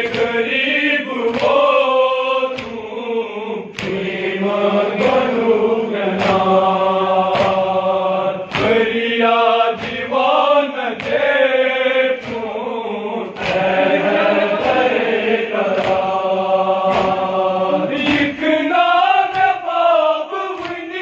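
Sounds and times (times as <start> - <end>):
chest-beating slaps: 0.0 - 3.0, 3.7 - 21.0
men chanting together: 0.0 - 21.0.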